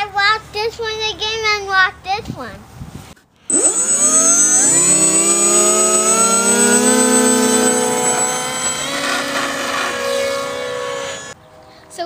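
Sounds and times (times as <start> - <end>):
electric motor propeller whine: 3.5 - 11.9.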